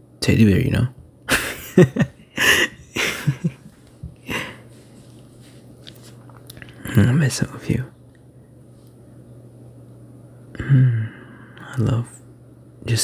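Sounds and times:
faint low hum: 0.0 - 13.0
man laughing softly: 1.3 - 4.7.

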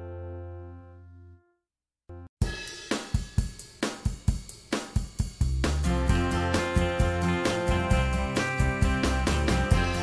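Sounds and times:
bass: 0.0 - 1.5, 5.2 - 10.0
drum beat with hi-hat and snare: 2.4 - 10.0.

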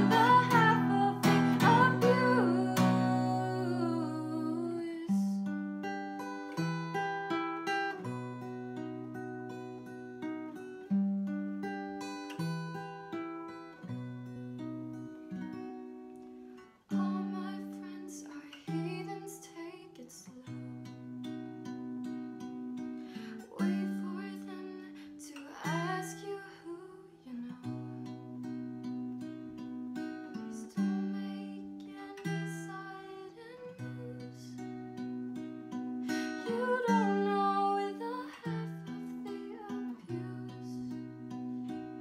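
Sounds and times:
woman singing softly: 0.0 - 5.6, 16.9 - 21.0, 23.2 - 28.2, 30.3 - 35.1, 36.0 - 42.0
acoustic guitar chords: 0.0 - 42.0.

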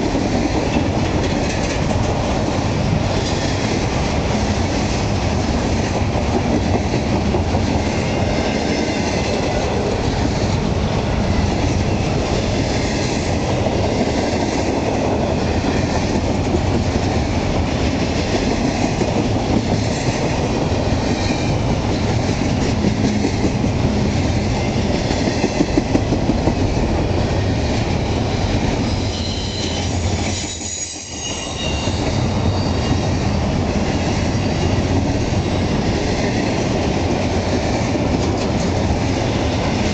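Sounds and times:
clickety-clack over rail joints: 0.0 - 39.9
train wheels rumbling on rails: 0.0 - 39.9
high wheel squeal: 28.8 - 33.2.

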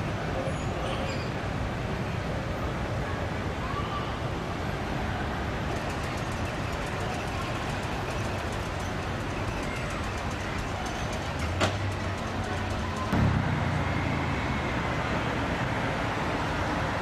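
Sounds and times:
electric tram rumbling on rails: 5.4 - 17.0.

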